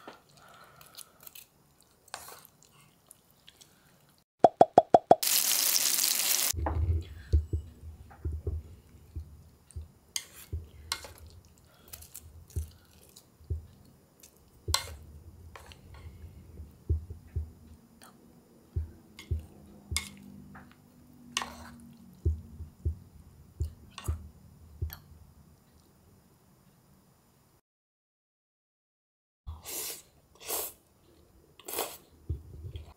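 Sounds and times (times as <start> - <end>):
chewing noodles: 0.2 - 4.2.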